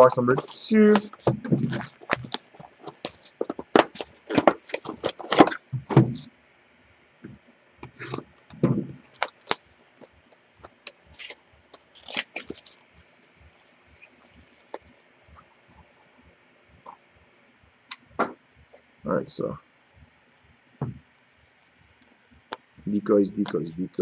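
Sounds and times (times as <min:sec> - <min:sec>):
crackles of sealed box being handled: 0:00.0 - 0:06.3, 0:07.8 - 0:15.0.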